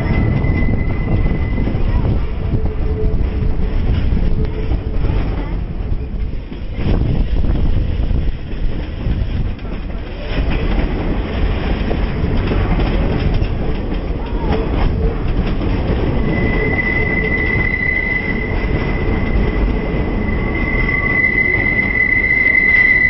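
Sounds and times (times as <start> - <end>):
high wheel squeal: 0.0 - 4.8, 15.8 - 23.0
train wheels rumbling on rail: 0.0 - 23.0.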